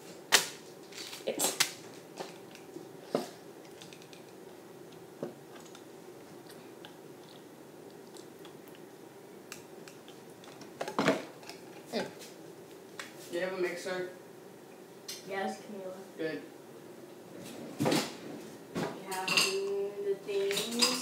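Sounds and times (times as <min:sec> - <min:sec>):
steady low hum: 0:00.0 - 0:21.0
kitchen items clicking and tapping: 0:20.4 - 0:21.0.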